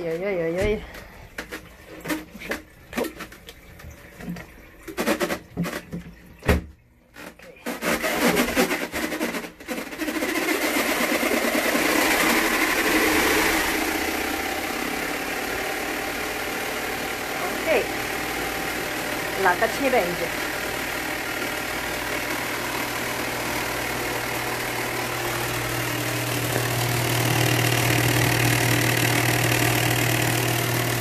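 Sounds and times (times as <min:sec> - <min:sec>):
clothes knocking in washer drum: 0:00.5 - 0:06.8
washing machine spin motor: 0:07.2 - 0:31.0.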